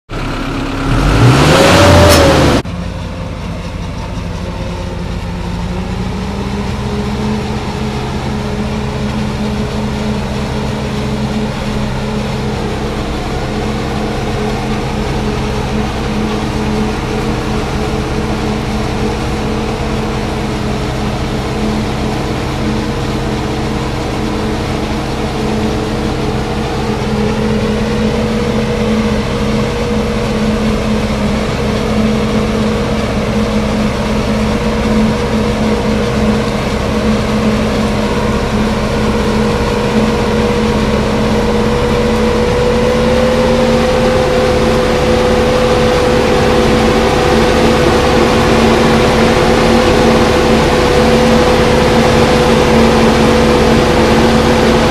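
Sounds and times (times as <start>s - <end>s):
diesel tractor engines: 0.0s - 54.9s
loud rising and falling burst: 0.8s - 2.6s.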